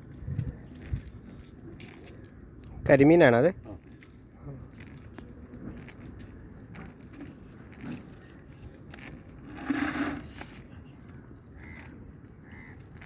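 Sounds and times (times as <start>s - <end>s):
net weights clinking on asphalt: 5.8s - 10.6s.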